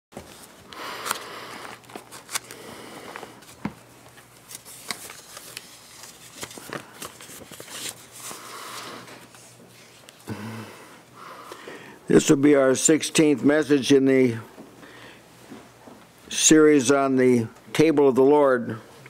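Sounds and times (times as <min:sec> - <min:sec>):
book pages rustling and turning: 0:00.2 - 0:10.2.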